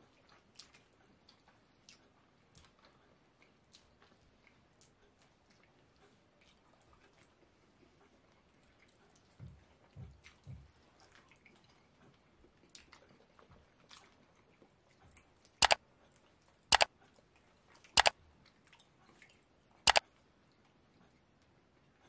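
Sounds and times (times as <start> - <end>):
chewing: 0.3 - 7.9.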